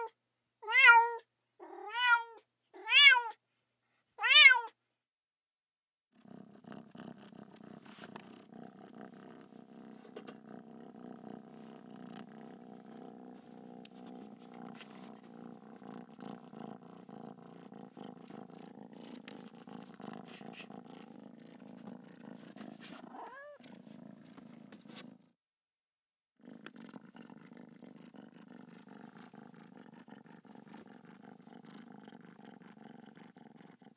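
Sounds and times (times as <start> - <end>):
cat purring: 6.2 - 25.4, 26.4 - 33.9
cat meowing quietly: 23.1 - 23.6.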